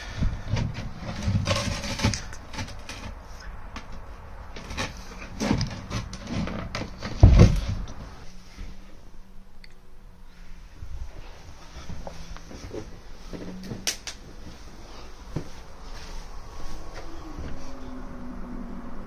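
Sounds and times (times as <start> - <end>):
floor panel knocking and scraping: 4.6 - 7.9
heavy thump: 7.0 - 7.9.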